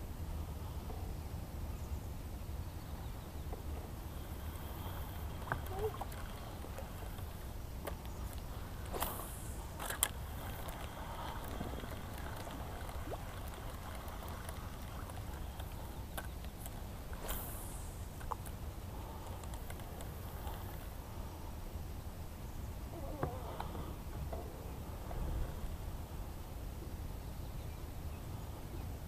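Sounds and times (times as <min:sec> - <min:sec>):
boat low rumble: 0:00.0 - 0:29.0
fishing gear clicks and knocks: 0:09.8 - 0:17.4.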